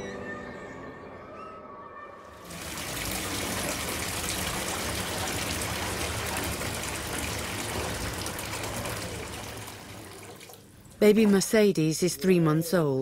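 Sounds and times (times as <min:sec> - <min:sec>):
water running: 0:02.3 - 0:11.8.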